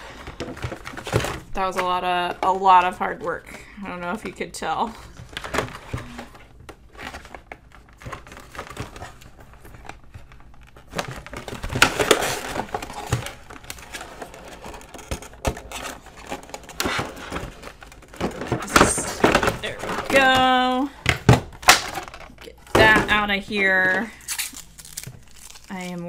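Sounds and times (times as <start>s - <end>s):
plastic packaging crackling: 5.1s - 20.8s, 21.5s - 26.0s.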